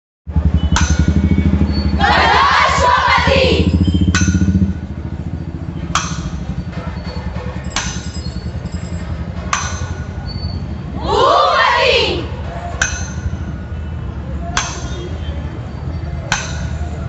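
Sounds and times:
ringing metallic clang: 0.6 - 1.9, 3.7 - 10.7, 12.8 - 17.0.

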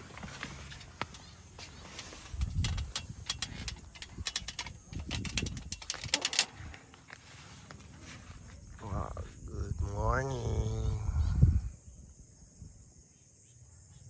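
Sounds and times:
metallic clicks on ladder rungs: 0.0 - 7.4.

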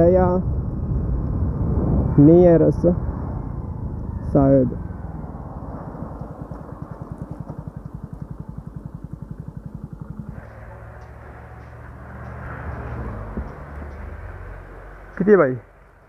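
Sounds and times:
steady low hum: 0.0 - 16.0
motorcycle engine running: 3.6 - 16.0.

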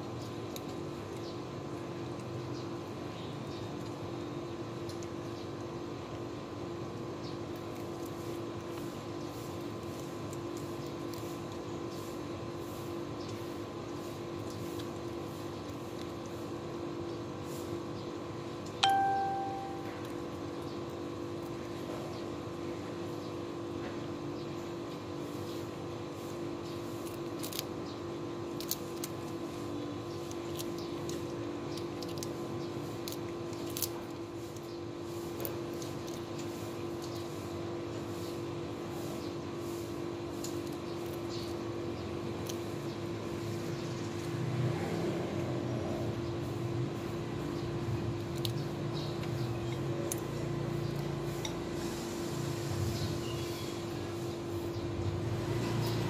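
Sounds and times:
kittens crunching shells: 0.0 - 17.1, 25.1 - 37.8, 40.2 - 43.4, 46.8 - 51.8
steady background hum: 0.0 - 56.0
metallic ding: 18.8 - 20.0.

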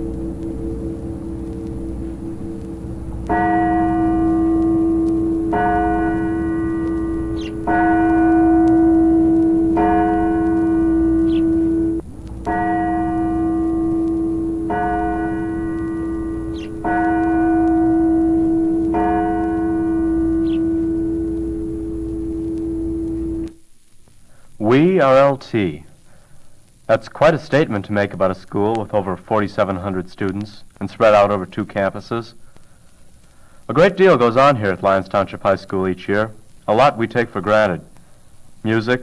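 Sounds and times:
clock tower bell striking: 0.0 - 23.5.

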